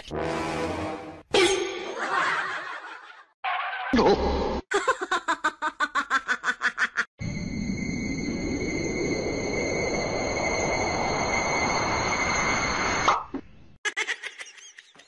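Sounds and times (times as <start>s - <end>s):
person laughing in bursts: 4.0s - 7.1s, 13.8s - 15.0s.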